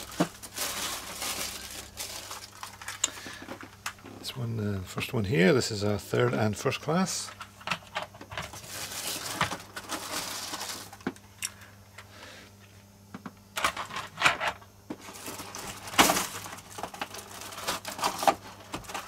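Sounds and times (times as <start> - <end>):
plastic wrapping rustling: 0.0 - 4.1, 8.3 - 11.2, 14.9 - 19.0.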